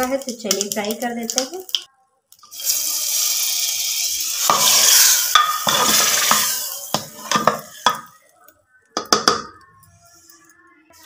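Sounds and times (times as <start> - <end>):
hot butter sizzling: 2.4 - 8.4
metal ladle clanking against pot: 5.3 - 8.1.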